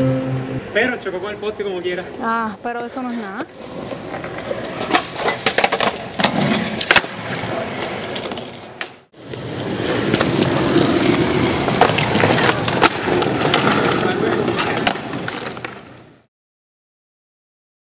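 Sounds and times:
skateboard wheels rolling: 3.5s - 16.3s
skateboard clacking on concrete: 3.6s - 16.0s.

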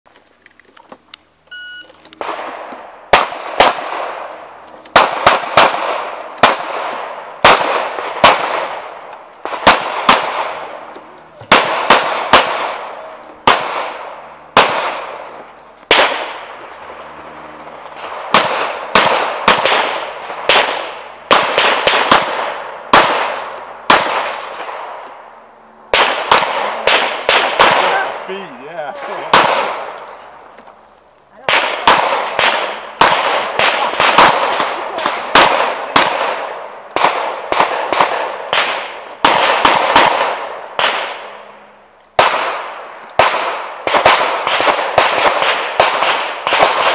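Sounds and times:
shot timer beep: 1.5s - 2.0s
handgun shots with echo: 18.0s - 25.0s, 26.0s - 28.2s, 31.5s - 41.3s.

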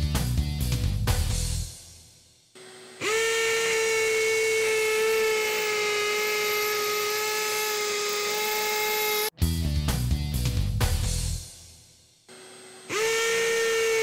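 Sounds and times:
hammer drill drilling into concrete: 2.6s - 9.3s, 12.7s - 14.0s.

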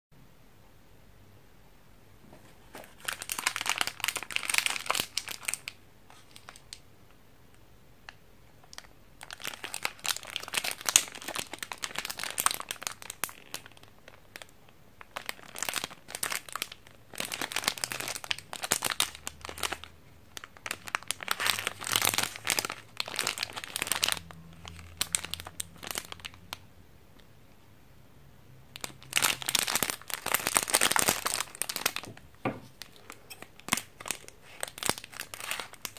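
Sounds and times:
plastic wrappers crinkling: 2.5s - 6.8s, 8.6s - 26.5s, 28.8s - 35.9s
pack being opened: 28.8s - 35.9s.

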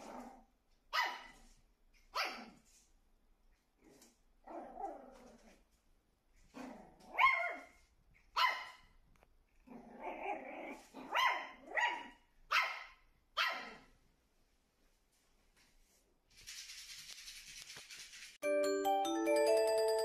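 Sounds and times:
puppy barking: 0.9s - 1.5s, 2.1s - 2.6s, 6.6s - 9.0s, 10.0s - 13.9s
puppy yelping: 6.6s - 8.9s, 9.7s - 13.9s.

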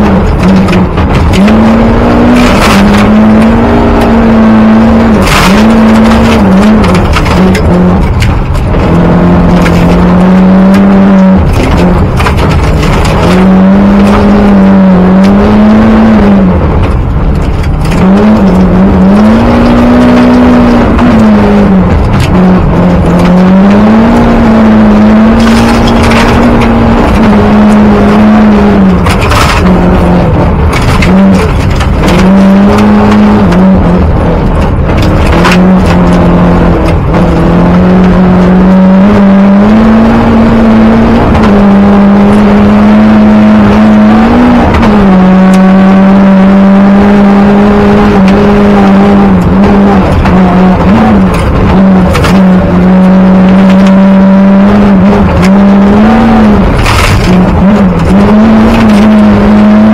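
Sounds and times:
rally car engine revving: 0.0s - 59.9s
road and gravel noise: 0.0s - 59.9s
sharp clatters: 5.2s - 14.4s, 25.0s - 37.4s, 55.0s - 59.9s.

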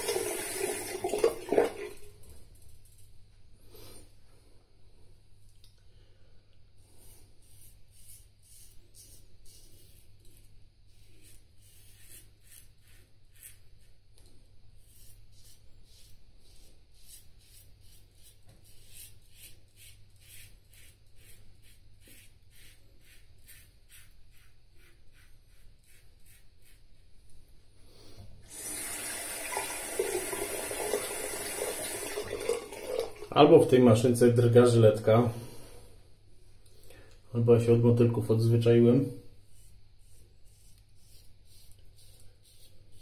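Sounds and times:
water running into sink: 0.0s - 2.2s, 28.5s - 33.4s
razor scraping stubble: 7.0s - 14.0s, 14.8s - 27.1s, 39.4s - 43.0s.

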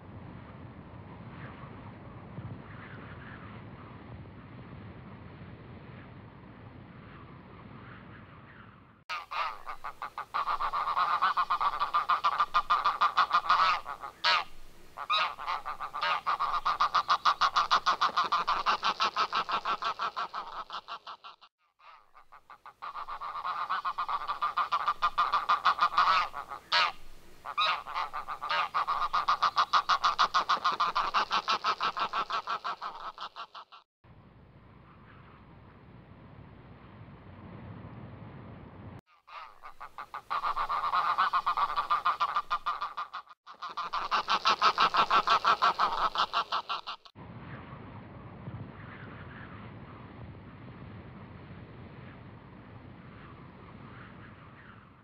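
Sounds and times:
flock of geese honking: 9.1s - 33.7s, 39.3s - 47.1s.

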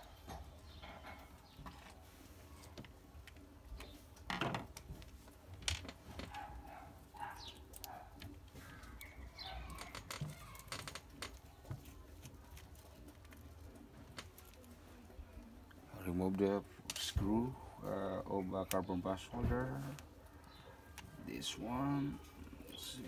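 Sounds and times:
birds calling: 6.2s - 12.0s, 15.4s - 23.0s.

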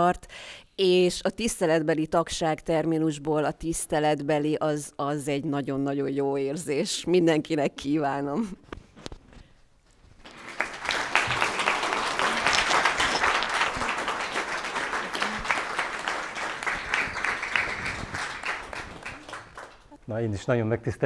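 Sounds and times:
audience applauding: 10.2s - 20.0s.

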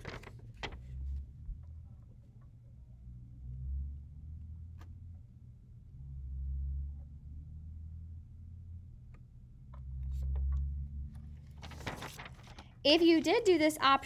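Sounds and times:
paper sheet handling noise: 0.0s - 1.2s, 10.0s - 13.8s.

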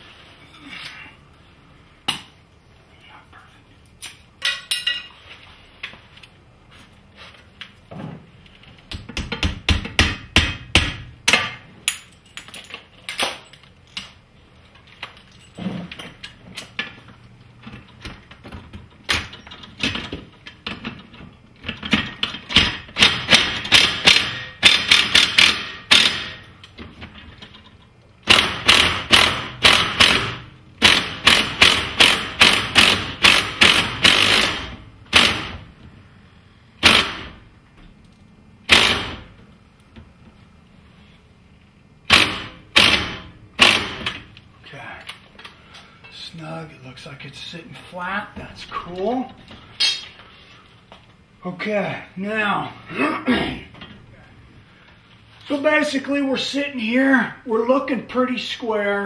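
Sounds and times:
impact driver rattling: 28.2s - 35.6s, 42.1s - 44.2s.

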